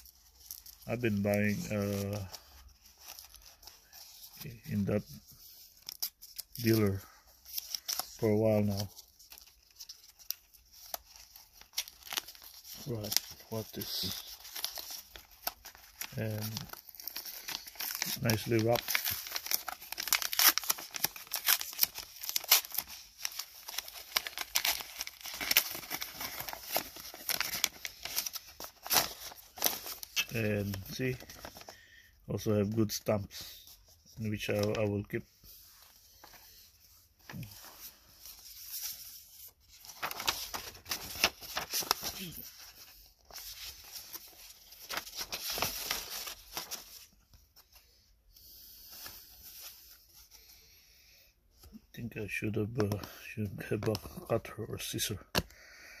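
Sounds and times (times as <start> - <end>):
paper envelope tearing: 10.2 - 31.7, 39.7 - 47.0.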